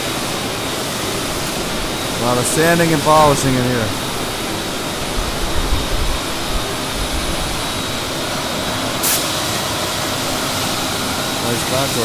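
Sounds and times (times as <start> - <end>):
sanding machinery noise: 0.0 - 12.0
brief air hiss: 9.0 - 9.5.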